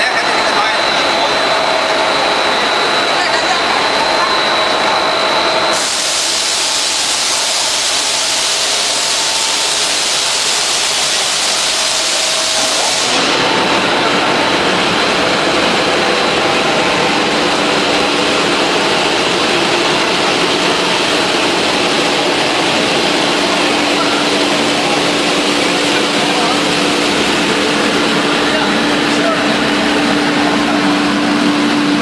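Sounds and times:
faint high whine: 0.0 - 13.6
machinery hissing: 0.0 - 32.0.

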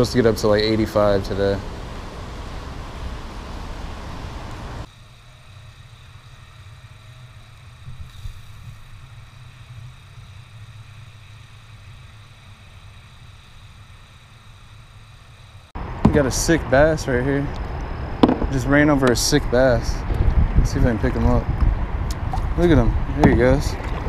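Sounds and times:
loud hiss: 0.0 - 17.4
low rumble: 15.7 - 24.0.

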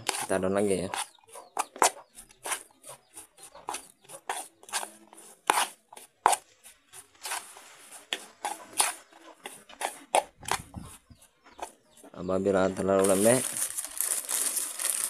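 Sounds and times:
spoon scraping metal bowl: 0.0 - 12.0.

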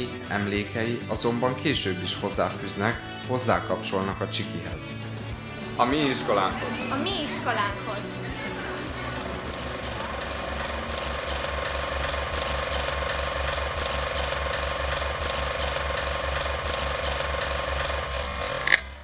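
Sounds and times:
motor hum: 8.2 - 19.0
film projector clattering: 8.4 - 19.0
projector stopping with sharp click: 8.5 - 19.0.

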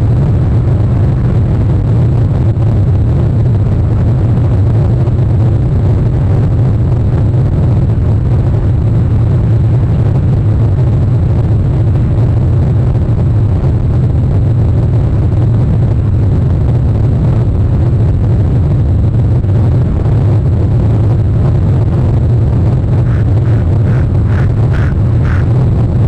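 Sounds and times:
loud low rumble: 0.0 - 26.0
faint bird calls: 23.1 - 25.5.

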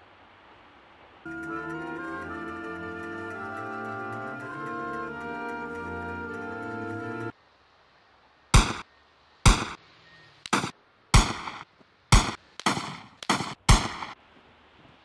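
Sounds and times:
gunshot bangs: 8.6 - 8.9, 9.5 - 9.8, 10.5 - 14.2.

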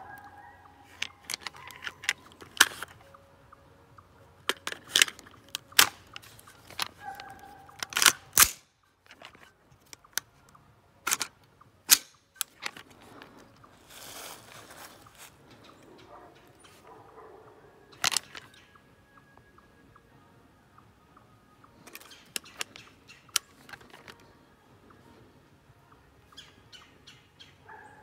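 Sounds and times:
rifle action metallic clacks: 0.9 - 3.0, 4.4 - 10.3, 11.0 - 13.4, 18.0 - 18.6, 21.8 - 24.3.

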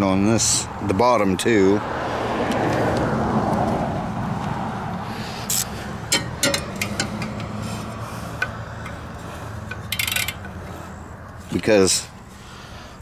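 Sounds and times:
hand ratchet clicking: 5.4 - 7.6, 8.3 - 11.4
metallic clicks and clinks: 5.5 - 7.6, 9.6 - 10.6.

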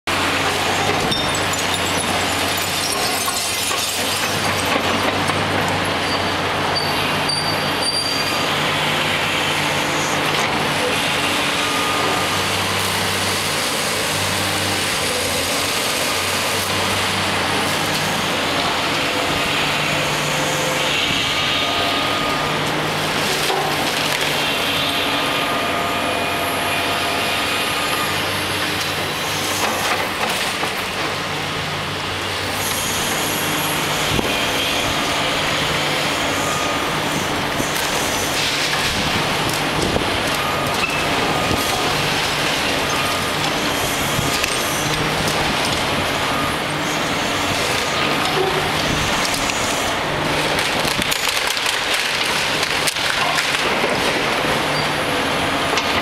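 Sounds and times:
excavator diesel engine under load: 0.1 - 56.0
concrete crumbling and debris falling: 0.6 - 5.2, 50.4 - 54.8.

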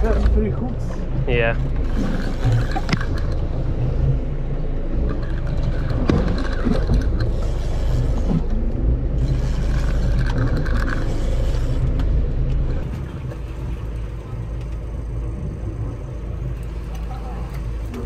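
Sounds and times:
boat engine rumble: 0.0 - 18.0.

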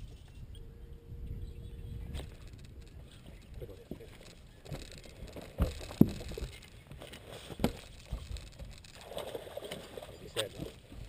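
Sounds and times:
knocks and thumps on boat deck: 3.8 - 7.0.

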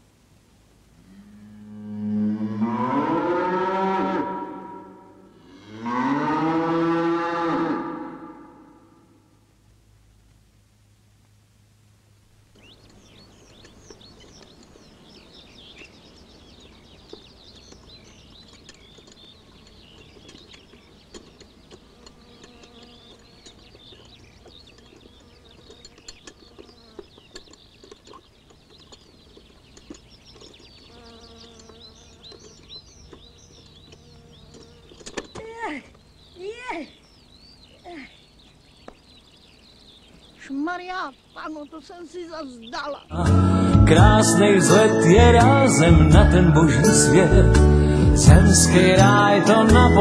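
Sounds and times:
insects buzzing: 12.3 - 45.2
small birds twittering: 12.4 - 50.0
steady-pitched insect buzz: 19.3 - 27.5, 30.4 - 35.3.

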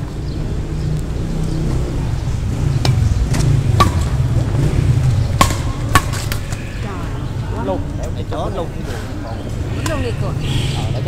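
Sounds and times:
steady low rumble: 0.0 - 8.0
racket hitting shuttlecock: 2.8 - 4.2, 5.3 - 6.6.

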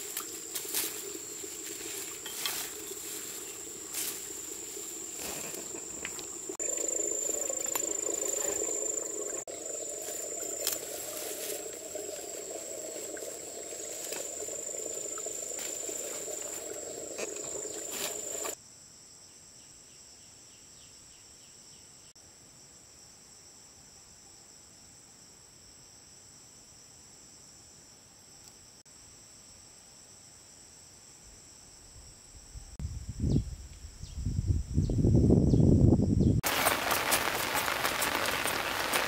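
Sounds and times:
insects droning: 0.0 - 39.0.

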